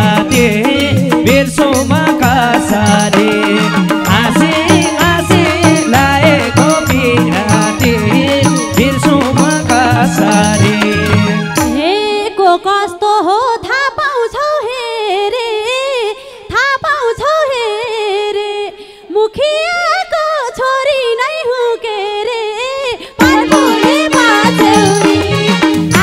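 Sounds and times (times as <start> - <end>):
instrumental backing: 0.0 - 12.8, 23.2 - 26.0
woman singing unaccompanied: 0.0 - 26.0.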